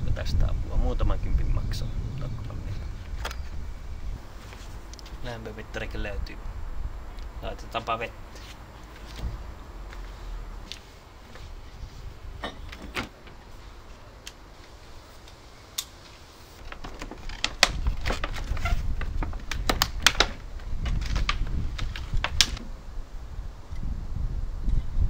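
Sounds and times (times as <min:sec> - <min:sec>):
plastic parts clicking and rattling: 0:16.6 - 0:22.7.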